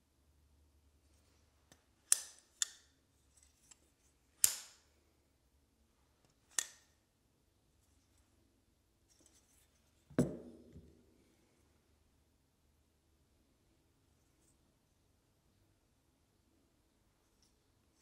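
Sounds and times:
folding knife blade clicking: 2.1 - 2.9, 4.4 - 4.8, 6.5 - 6.9
dull knock with low ring: 10.2 - 10.7.

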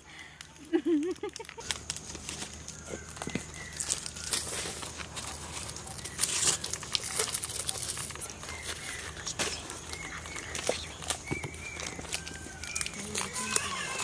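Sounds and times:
foil and paper wrappers crinkling: 0.0 - 14.0.

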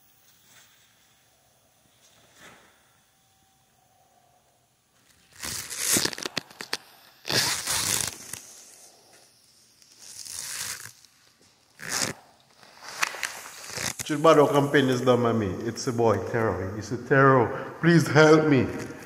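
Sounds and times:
plastic rustling and crinkling: 5.0 - 8.8, 9.8 - 14.2.

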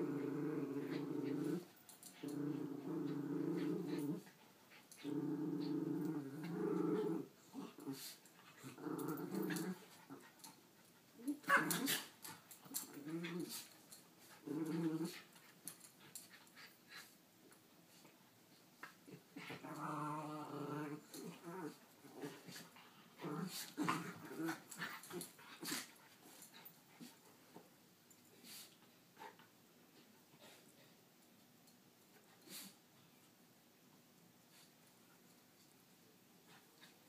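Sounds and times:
dog growling: 0.0 - 4.3, 5.0 - 10.3, 14.4 - 15.2, 19.4 - 22.6, 23.2 - 25.9.

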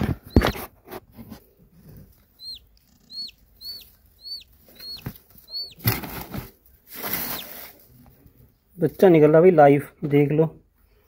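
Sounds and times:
chick peeping: 0.0 - 7.8
rustling: 0.0 - 9.0.

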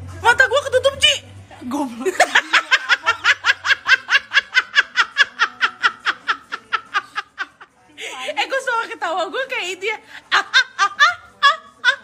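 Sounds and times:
woman laughing hard: 2.0 - 7.6, 10.3 - 12.0.

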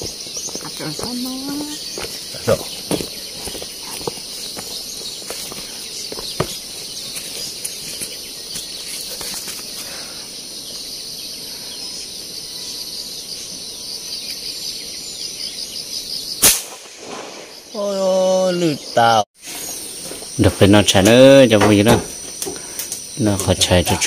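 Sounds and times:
insects chirring: 0.0 - 24.0
gunshot: 16.4 - 17.8.

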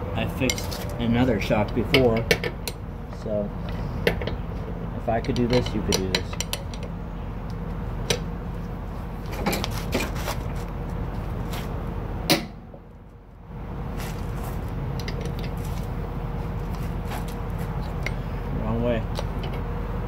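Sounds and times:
steady low hum: 0.0 - 20.0
ratchet wrench clinking on metal: 5.0 - 7.0.

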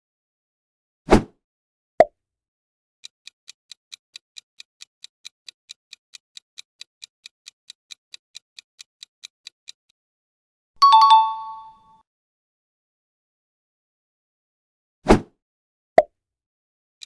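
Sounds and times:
clock ticking: 3.0 - 10.0.

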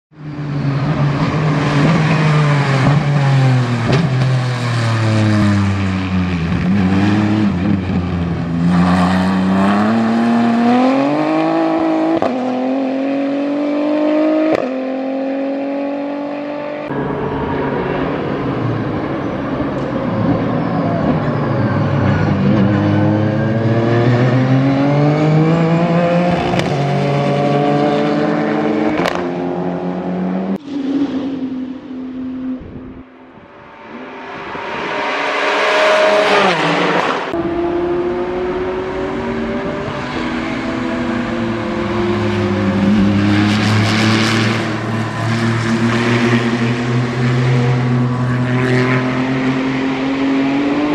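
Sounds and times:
race car engine: 0.1 - 50.9.

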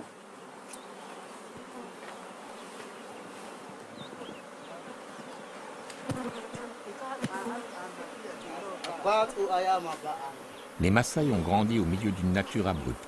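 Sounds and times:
honey bees buzzing: 0.0 - 13.0.

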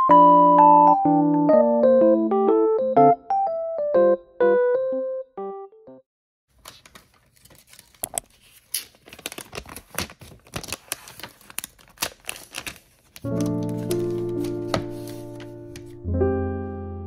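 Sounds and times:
soft piano tune: 0.0 - 6.0, 13.2 - 17.0
plastic wrap peeling crackles: 6.6 - 16.0.

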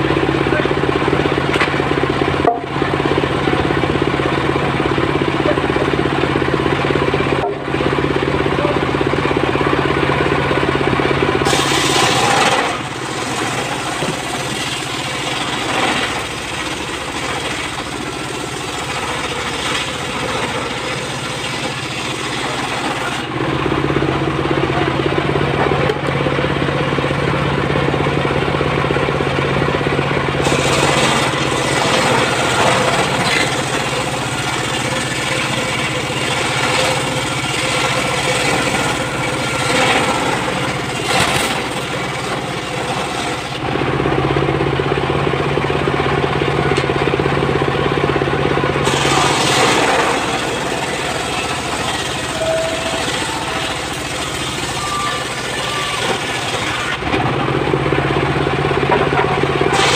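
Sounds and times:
diesel engine running: 0.0 - 59.9
circular saw cutting wood: 10.2 - 26.1, 30.3 - 43.8, 48.8 - 57.2, 59.0 - 59.9.

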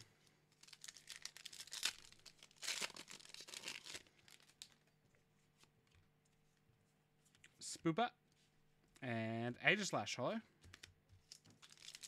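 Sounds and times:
foil wrapper tearing and crinkling: 0.6 - 4.8, 11.3 - 12.0.

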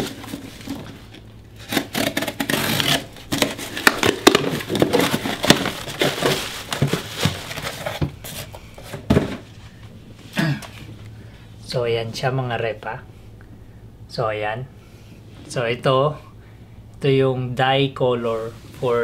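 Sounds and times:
packing tape tearing: 0.0 - 8.0
cardboard flaps scraping: 0.0 - 9.6.

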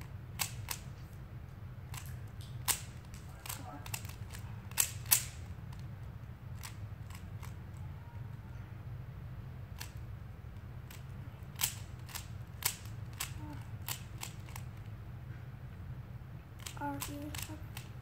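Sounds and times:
puzzle cube clicking: 0.3 - 0.9, 1.9 - 5.9, 6.5 - 7.7, 9.8 - 10.0, 10.9 - 15.0, 16.6 - 18.0.

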